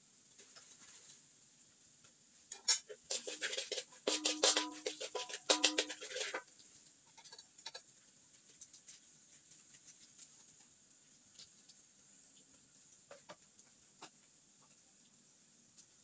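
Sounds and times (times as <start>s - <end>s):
metal spatula scraping a wok: 2.5s - 6.5s, 7.1s - 7.8s.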